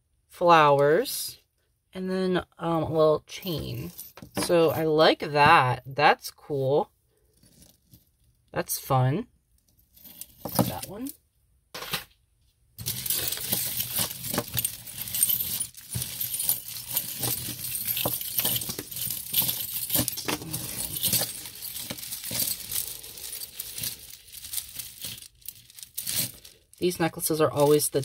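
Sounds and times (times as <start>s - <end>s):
necklaces and chains jangling: 12.8s - 28.0s.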